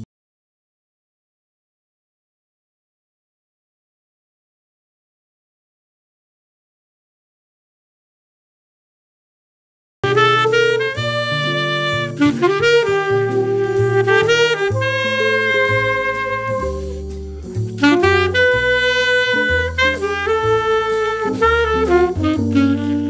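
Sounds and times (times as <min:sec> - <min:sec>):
bass line: 0:10.0 - 0:23.0
jazz backing music: 0:10.0 - 0:23.0
saxophone jazz melody: 0:10.0 - 0:23.0.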